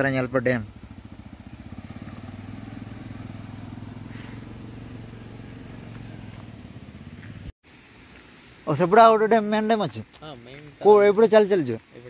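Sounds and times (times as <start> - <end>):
motorcycle engine running: 0.0 - 7.5.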